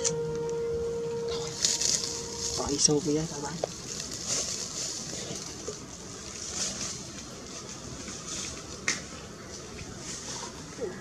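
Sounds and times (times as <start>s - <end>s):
wind-like outdoor hiss: 0.0s - 11.0s
foil crackle: 1.3s - 8.8s
foil wrapper rustling: 1.5s - 7.2s.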